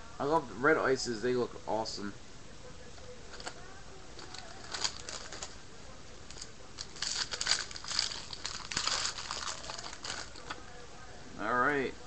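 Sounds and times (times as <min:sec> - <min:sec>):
foil pack tearing and crinkling: 0:04.2 - 0:05.6, 0:06.3 - 0:10.6.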